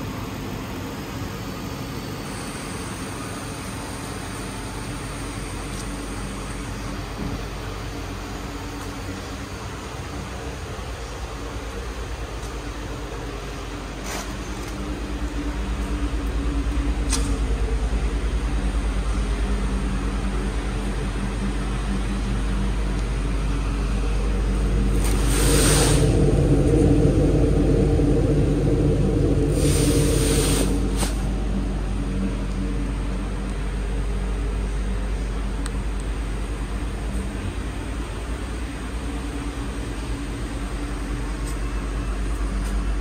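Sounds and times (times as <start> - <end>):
car engine running: 0.0 - 43.0
brief rushing noise: 24.9 - 31.6.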